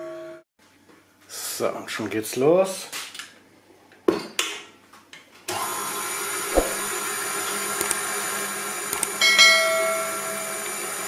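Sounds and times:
short ringing ding: 9.2 - 10.2.

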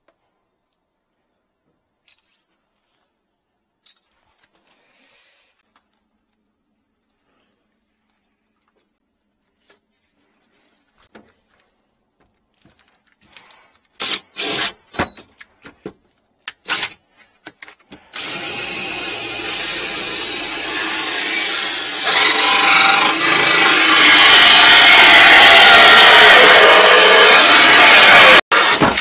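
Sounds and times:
knocks and handling noises: 8.0 - 14.0, 15.0 - 16.5
drill with hole saw cutting wood: 14.0 - 14.8, 16.6 - 16.9, 18.1 - 29.0.

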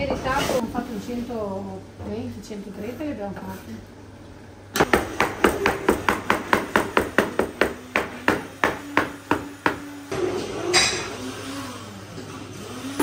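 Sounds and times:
bench scraper chopping on wooden board: 4.8 - 10.1.

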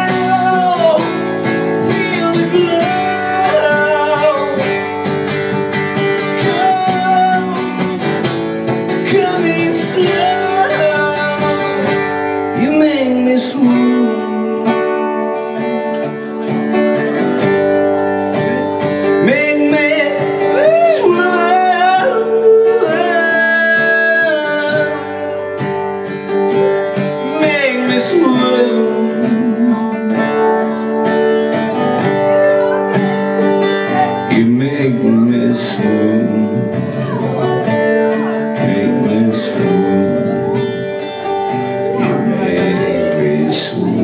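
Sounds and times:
man singing: 0.0 - 16.2, 18.3 - 25.7, 26.3 - 44.0
acoustic guitar strummed: 0.0 - 44.0.

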